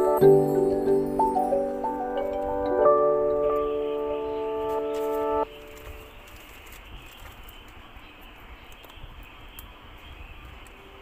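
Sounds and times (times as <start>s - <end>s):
bell-like chiming music: 0.0s - 5.7s.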